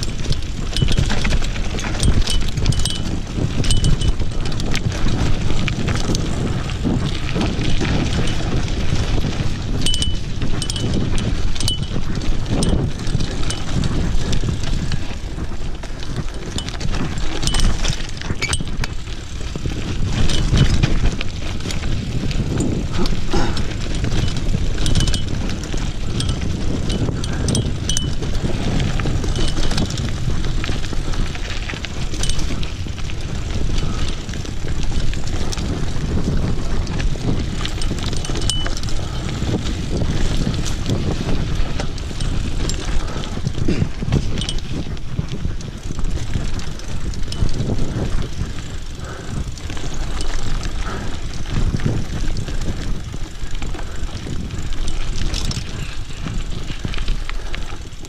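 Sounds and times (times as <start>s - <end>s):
bike rattling: 0.0s - 58.0s
wind buffeting microphone: 0.0s - 58.0s.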